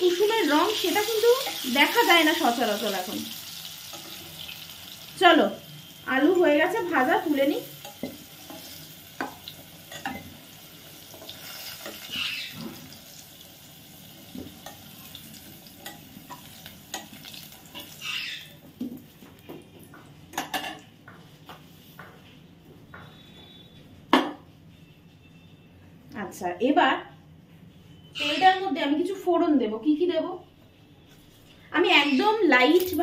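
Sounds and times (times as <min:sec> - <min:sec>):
potatoes sizzling in hot oil: 0:00.0 - 0:18.4, 0:32.6 - 0:33.0.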